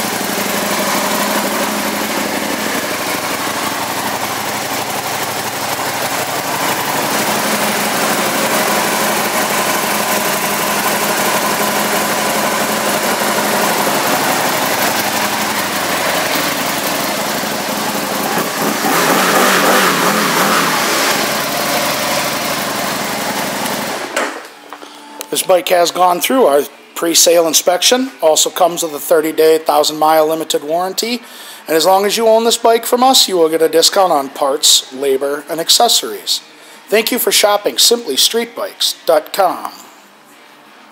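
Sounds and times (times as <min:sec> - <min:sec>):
motorcycle engine idling: 0:00.0 - 0:24.0.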